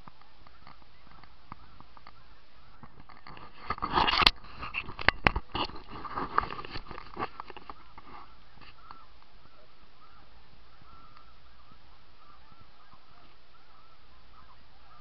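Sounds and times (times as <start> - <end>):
scattered crackling: 0.0 - 9.4
camera handling scraping and rustling: 2.8 - 8.8.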